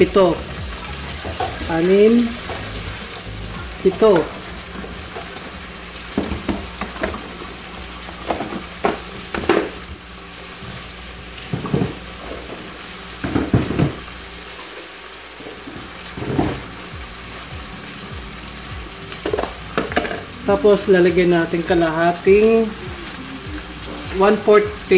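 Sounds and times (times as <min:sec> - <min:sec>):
simmering liquid hissing: 0:00.0 - 0:24.9.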